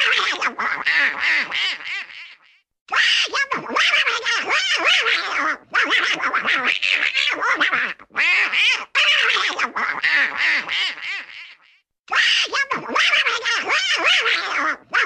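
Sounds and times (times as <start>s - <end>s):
raspy cartoon duck voice quacking: 0.0s - 15.0s.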